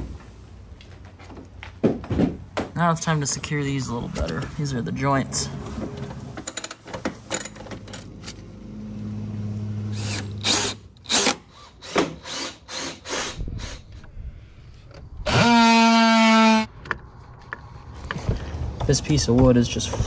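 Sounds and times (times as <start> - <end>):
cordless drill whine: 9.9 - 14.0, 15.2 - 16.7.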